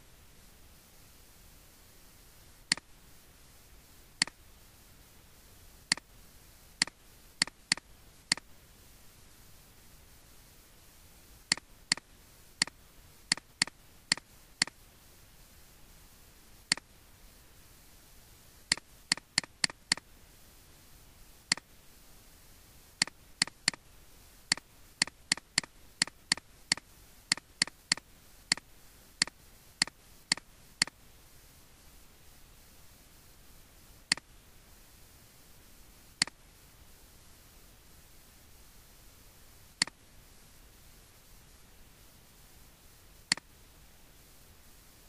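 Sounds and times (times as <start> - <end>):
faint background hiss: 0.0 - 45.0
mouse button clicking: 6.8 - 8.5, 11.5 - 12.0, 12.6 - 14.8, 18.7 - 20.0, 24.5 - 28.6, 29.2 - 31.0, 43.3 - 43.5.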